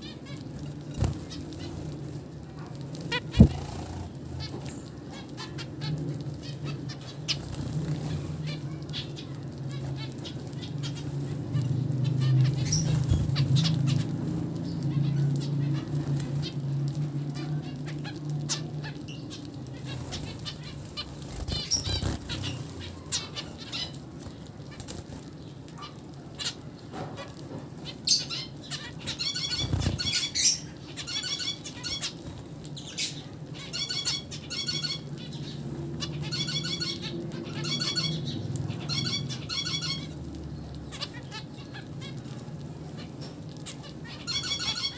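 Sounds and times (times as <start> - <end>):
low steady hum: 0.0 - 25.7
wing flutters: 0.4 - 4.9, 19.5 - 25.4, 29.1 - 30.6.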